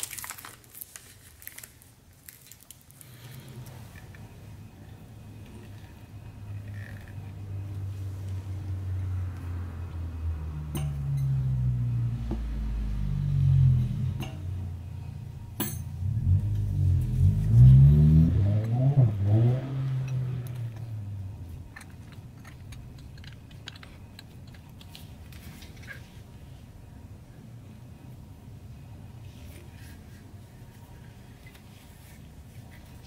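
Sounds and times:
engine revving and accelerating: 6.8 - 14.7, 15.9 - 23.2
small parts clicking and rattling: 21.6 - 26.0.

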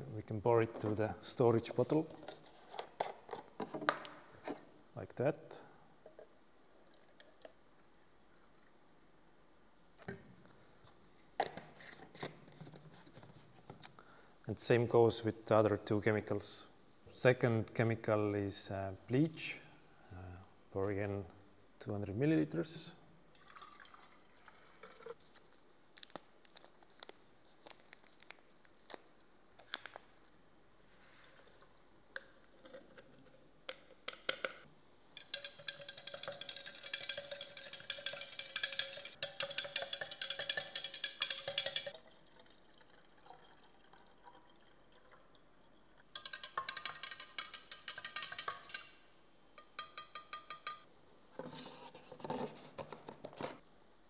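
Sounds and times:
water pouring into a cylinder: 23.3 - 25.2, 41.2 - 46.8
stirring rod clicking on glass: 35.2 - 42.0, 46.2 - 49.0, 49.6 - 50.9.

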